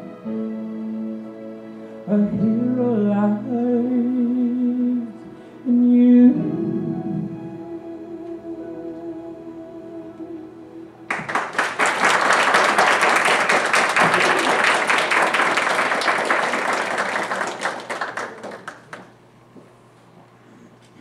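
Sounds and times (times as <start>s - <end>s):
audience applauding: 11.1s - 19.2s.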